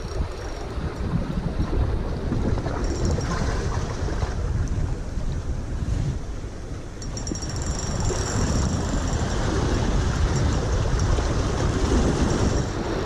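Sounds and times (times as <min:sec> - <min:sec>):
fishing reel buzzing: 0:00.0 - 0:01.1, 0:07.0 - 0:12.8
wind rumble on microphone: 0:00.0 - 0:13.0.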